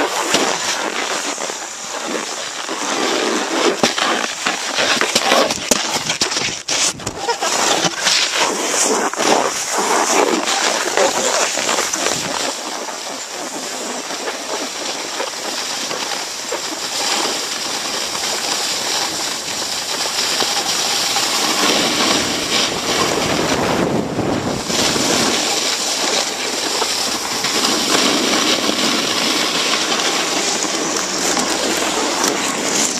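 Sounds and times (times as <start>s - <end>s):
gondola cabin rushing noise: 7.0s - 32.9s.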